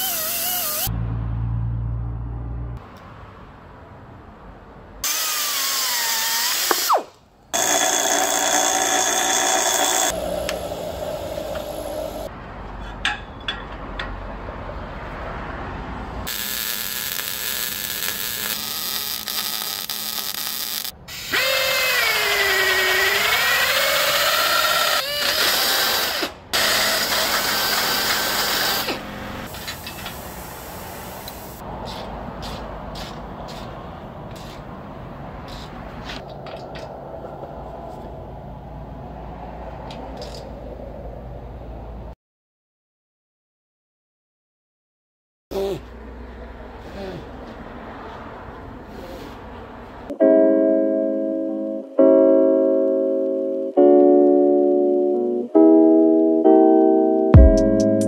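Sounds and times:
pneumatic cut-off tool cutting steel: 0.0 - 0.9, 5.0 - 10.2, 16.3 - 30.2
welding hiss and crackle: 16.3 - 21.3, 25.4 - 33.7.

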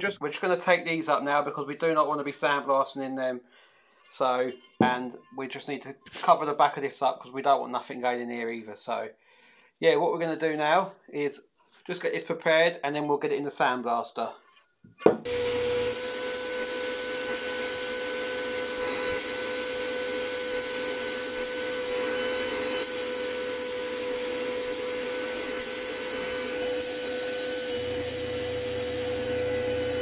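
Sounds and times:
sandblast gun hissing: 15.3 - 30.0.

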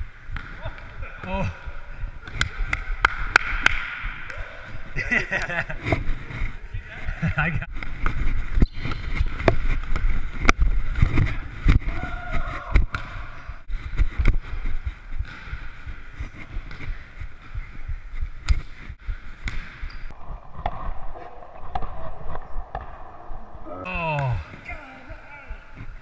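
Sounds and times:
sneaker squeaks: 8.5 - 9.6, 19.5 - 20.1.

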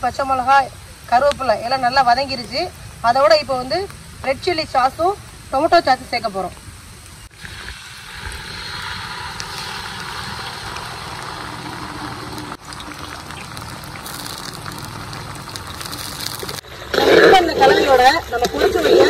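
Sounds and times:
food sizzling in hot oil: 7.2 - 18.4
sauce being poured: 7.4 - 16.8.

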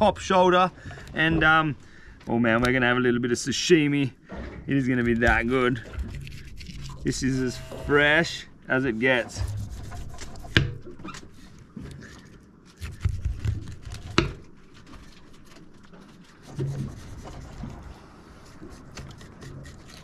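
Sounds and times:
knife slicing and scraping fish: 5.3 - 7.4, 9.4 - 11.4, 12.7 - 17.9, 18.5 - 20.0.

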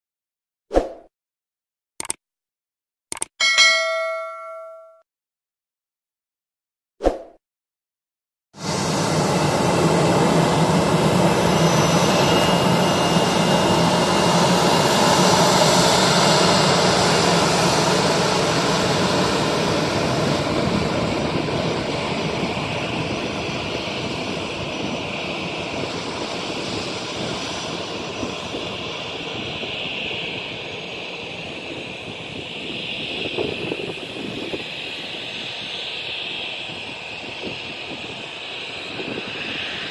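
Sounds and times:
jet engines at takeoff thrust: 8.6 - 39.9.

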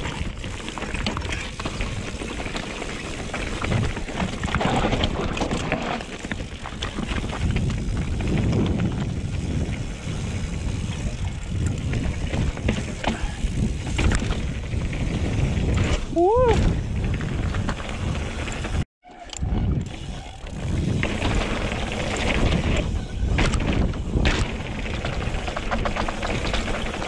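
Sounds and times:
bike knocks and rattles: 0.0 - 18.8, 19.4 - 27.0
bike tyres rumbling over rock: 0.0 - 18.8, 19.5 - 27.0
wind buffeting microphone: 6.4 - 18.8, 19.4 - 27.0.

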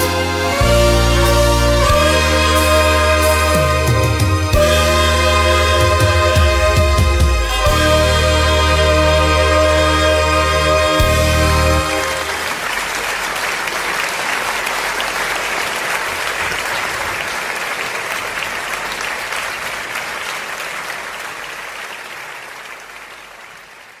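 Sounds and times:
wind ensemble chord: 0.0 - 12.8
audience applauding: 0.0 - 24.0.

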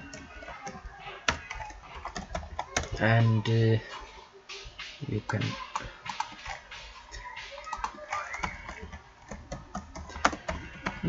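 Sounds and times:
typing on computer keyboard: 0.0 - 3.0, 5.7 - 6.6, 7.6 - 11.0.

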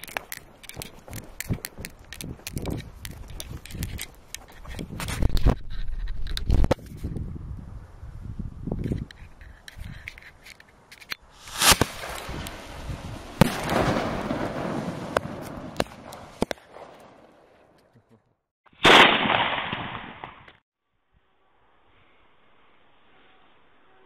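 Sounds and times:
hissing and crackling with pops: 0.0 - 7.2, 8.9 - 17.9
loud bang: 11.4 - 14.5
loud rushing burst: 11.4 - 15.0.

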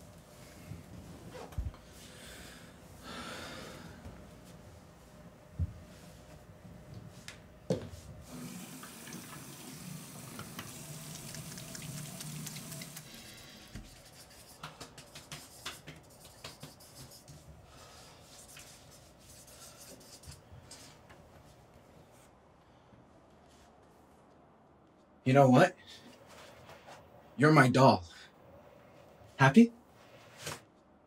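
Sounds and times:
marker writing on notepad: 13.8 - 17.5, 18.2 - 20.9.

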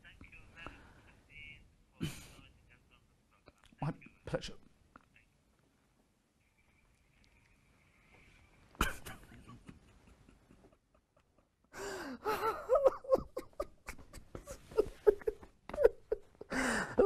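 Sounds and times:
man sobbing: 2.0 - 2.4, 8.8 - 17.0.

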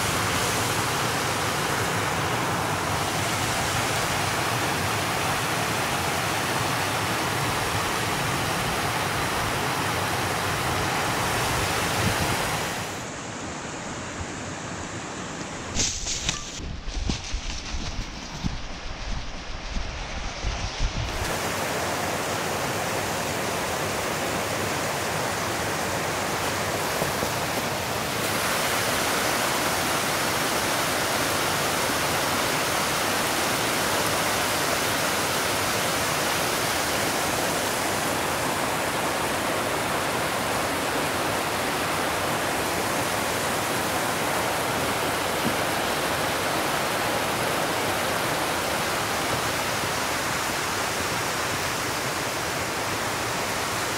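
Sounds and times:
stream tumbling over rocks: 21.1 - 53.9.

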